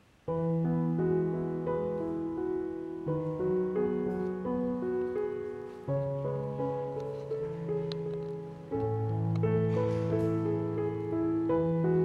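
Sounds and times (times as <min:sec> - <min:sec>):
background music melody: 0:00.0 - 0:12.0.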